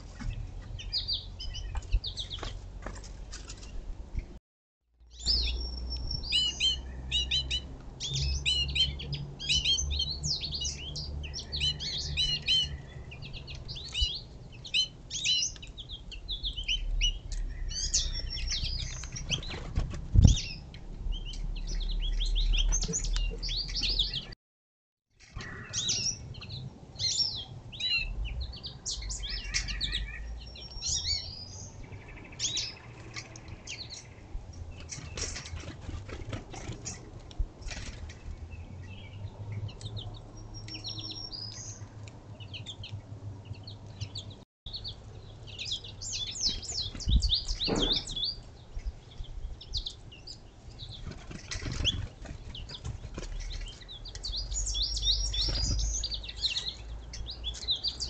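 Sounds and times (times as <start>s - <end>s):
songbirds chirping: 0.0s - 4.4s, 5.0s - 24.4s, 25.2s - 58.0s
sharp thump: 47.6s - 48.1s.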